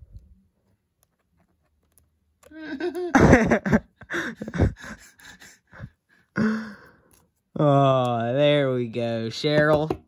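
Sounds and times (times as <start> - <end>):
man laughing: 2.5 - 6.8.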